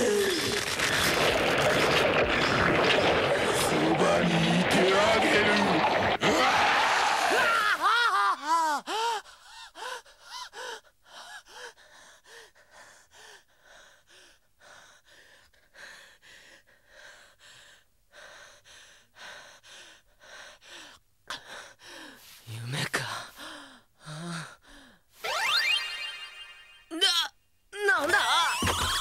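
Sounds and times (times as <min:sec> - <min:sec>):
man panting hard: 0:08.6 - 0:22.4.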